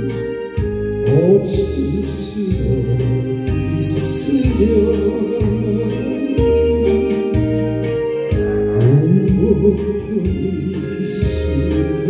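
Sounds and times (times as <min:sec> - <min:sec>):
karaoke backing track: 0:00.0 - 0:12.0.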